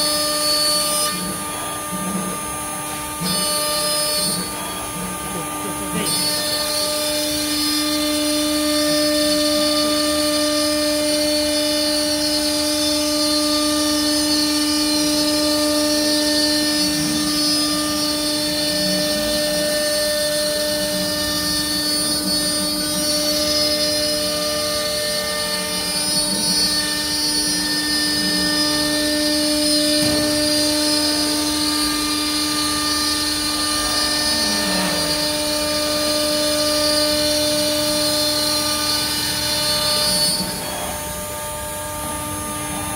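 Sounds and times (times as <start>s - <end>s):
router spindle whining: 0.0s - 42.9s.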